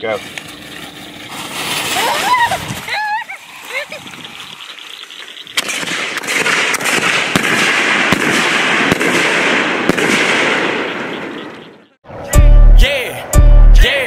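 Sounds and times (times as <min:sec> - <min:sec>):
firework pops and crackles: 0:05.5 - 0:10.6.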